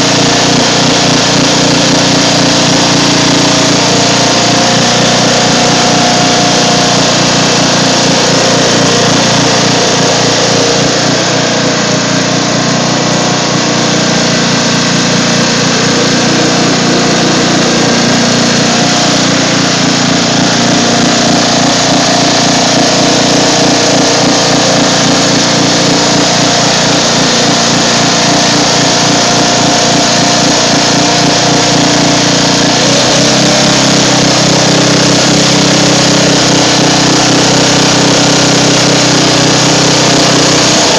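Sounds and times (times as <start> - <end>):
riding lawn mower engine running: 0.0 - 40.9.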